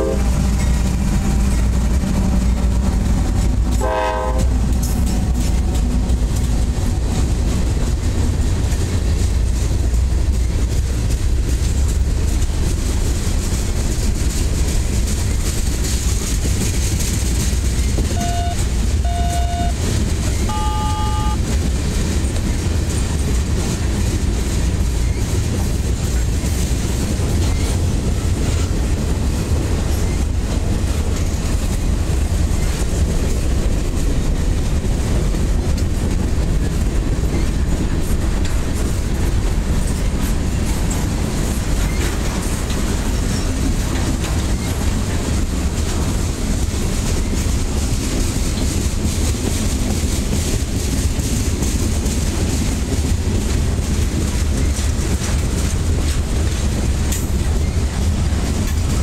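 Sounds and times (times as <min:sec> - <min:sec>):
freight train rumbling past: 0:00.0 - 0:59.0
brief tone: 0:18.1 - 0:19.8, 0:20.4 - 0:21.4
short high beeps: 0:18.1 - 0:19.8, 0:20.5 - 0:21.4.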